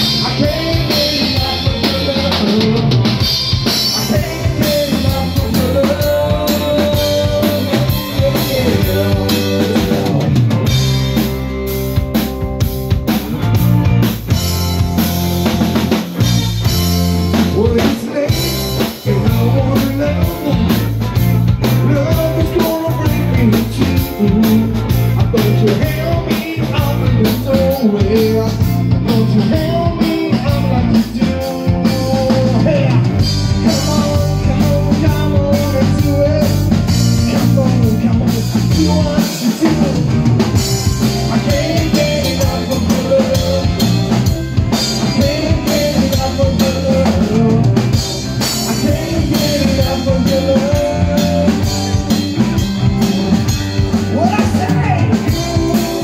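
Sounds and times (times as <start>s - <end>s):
bass guitar: 0.0s - 56.0s
drum kit: 0.0s - 56.0s
electric guitar: 0.0s - 56.0s
man and woman singing: 0.1s - 3.0s, 3.9s - 10.3s, 17.6s - 20.8s, 21.8s - 36.7s, 41.2s - 44.0s, 45.0s - 47.7s, 48.6s - 51.8s, 54.2s - 56.0s.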